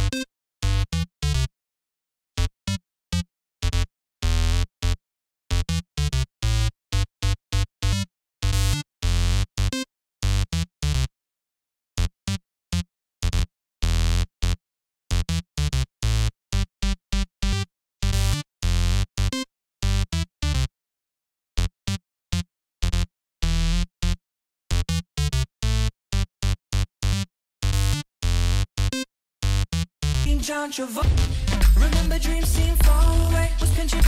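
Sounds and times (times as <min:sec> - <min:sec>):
choppy synth bass notes: 0:00.0 - 0:01.5, 0:03.6 - 0:06.7, 0:13.2 - 0:20.7, 0:21.6 - 0:24.2, 0:29.4 - 0:34.0.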